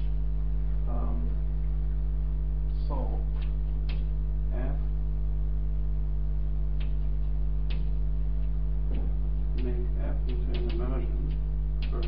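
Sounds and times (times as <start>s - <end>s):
electrical hum: 0.0s - 12.0s
chalk tapping on blackboard: 9.6s - 12.0s.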